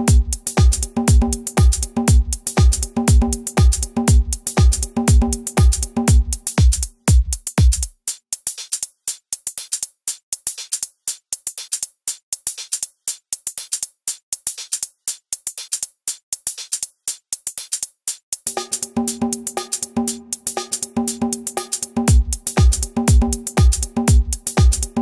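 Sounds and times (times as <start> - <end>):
deep kick drum and bass: 0.0 - 8.0, 21.0 - 25.0
fast clicking percussion: 0.0 - 25.0
electronic background music: 18.5 - 25.0.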